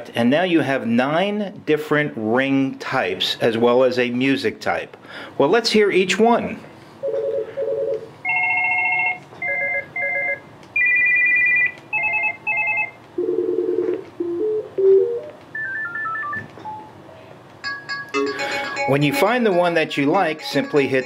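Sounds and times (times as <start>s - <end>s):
desk phone ring tones: 7.0s - 16.9s, 17.6s - 19.6s, 20.2s - 21.0s
falling run of beeps: 15.6s - 16.9s.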